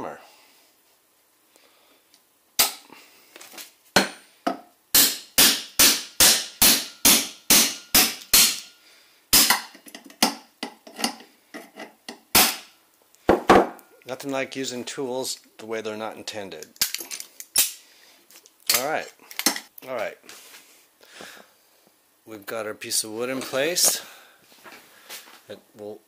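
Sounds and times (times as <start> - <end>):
hammer striking metal pliers: 4.0 - 8.7, 9.4 - 11.2.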